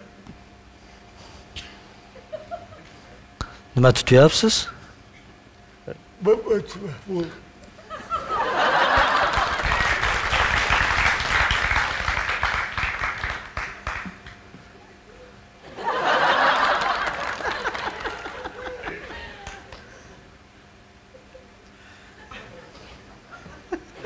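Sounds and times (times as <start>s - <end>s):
audience laughing: 7.8s - 10.0s, 15.6s - 19.8s, 22.2s - 24.0s
audience applauding: 8.6s - 14.4s, 16.0s - 19.8s.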